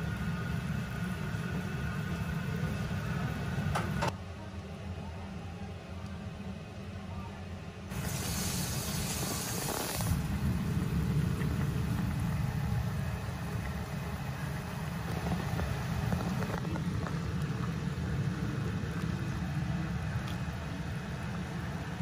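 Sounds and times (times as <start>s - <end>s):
pot boiling on gas stove: 0.0s - 4.2s, 7.9s - 22.0s
hiss: 7.9s - 11.0s.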